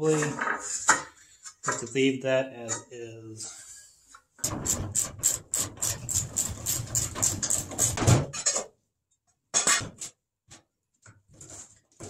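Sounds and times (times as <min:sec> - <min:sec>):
hand tool scraping rusty steel: 0:03.4 - 0:08.7.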